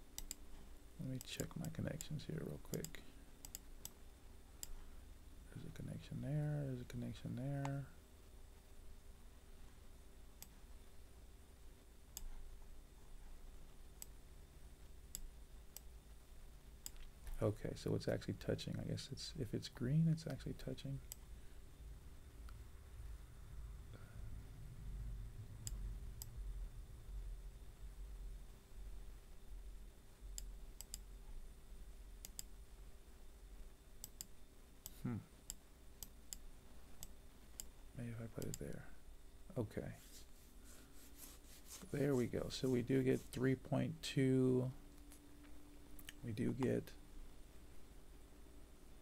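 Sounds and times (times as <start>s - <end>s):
low room hum: 0.0s - 49.0s
computer mouse clicking: 0.2s - 0.6s, 1.2s - 4.0s, 12.2s - 12.4s, 16.8s - 17.4s, 30.3s - 31.1s, 32.2s - 32.6s, 34.0s - 37.7s, 38.4s - 38.8s.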